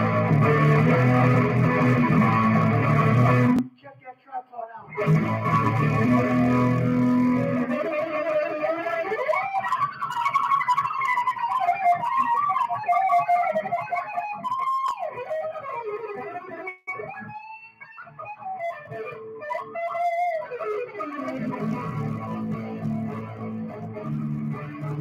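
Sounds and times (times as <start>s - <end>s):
bass guitar: 0.0s - 3.7s, 4.9s - 12.7s, 18.2s - 25.0s
electric guitar lead: 0.0s - 3.7s, 4.9s - 25.0s.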